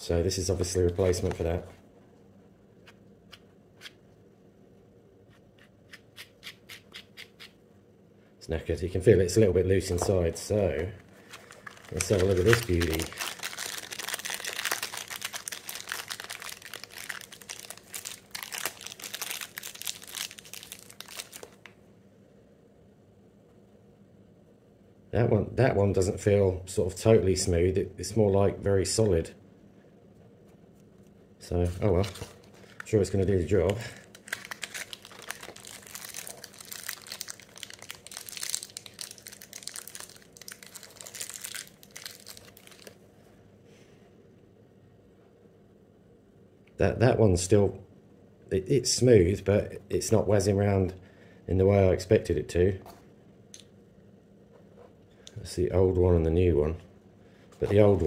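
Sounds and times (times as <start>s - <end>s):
plastic wrapping crinkling: 11.1s - 21.7s, 31.8s - 43.0s.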